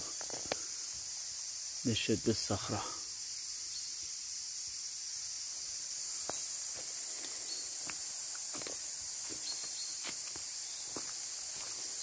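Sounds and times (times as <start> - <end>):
footsteps on forest floor: 0.0 - 0.8, 6.0 - 12.0
insects chorus: 0.0 - 12.0.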